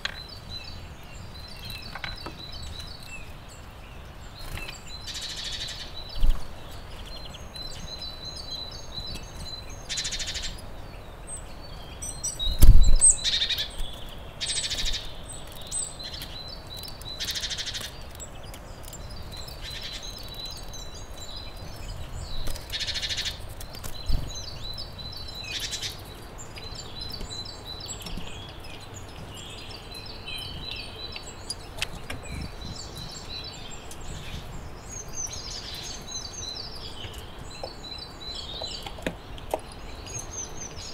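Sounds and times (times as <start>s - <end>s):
birds singing and chirping: 0.0s - 40.9s.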